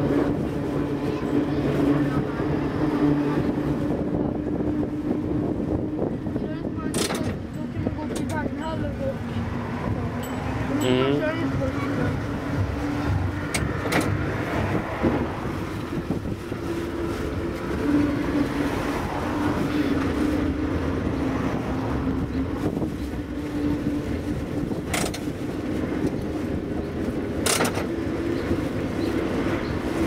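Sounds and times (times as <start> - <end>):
tram wheels rumbling on rails: 0.0 - 30.0
wind on microphone: 0.0 - 30.0.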